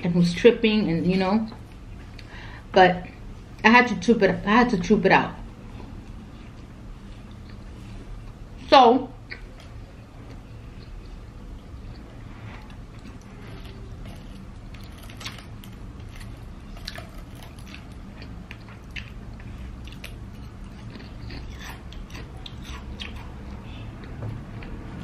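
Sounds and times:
steady low hum: 0.0 - 25.0
chewing food: 5.9 - 8.4, 9.2 - 24.8.

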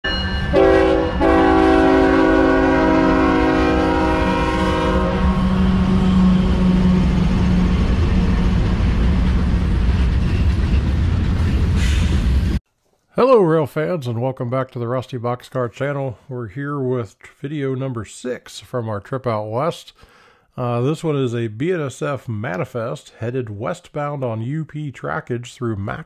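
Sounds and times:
freight train rumbling past: 0.1 - 12.6
locomotive air horn: 0.5 - 7.7.

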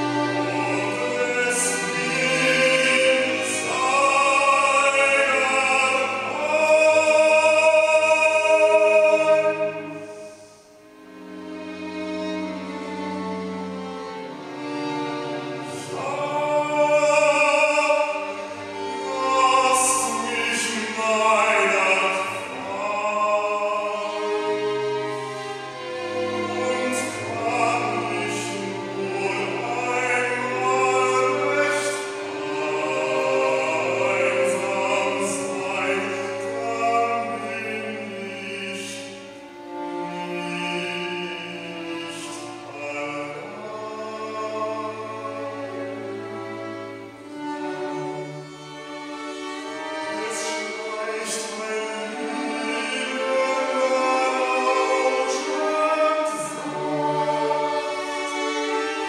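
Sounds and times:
man singing operatically: 0.0 - 10.6, 15.6 - 24.6, 26.2 - 39.4, 40.0 - 46.0, 50.1 - 58.3
string quartet accompaniment: 0.0 - 59.0.

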